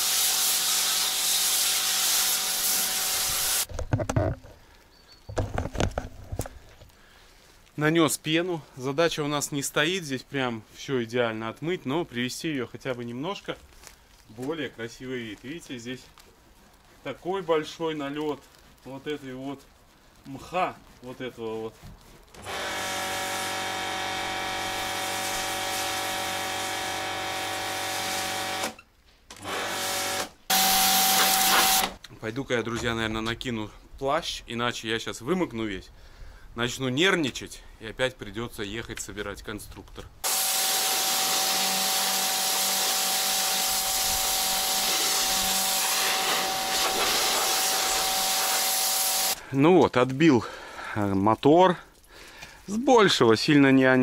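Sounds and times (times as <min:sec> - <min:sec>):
water spray hiss: 0:00.0 - 0:03.7, 0:22.4 - 0:28.6, 0:30.6 - 0:31.9, 0:40.2 - 0:49.4
pressure washer pump drone: 0:22.4 - 0:28.8, 0:29.4 - 0:32.0, 0:40.2 - 0:49.4.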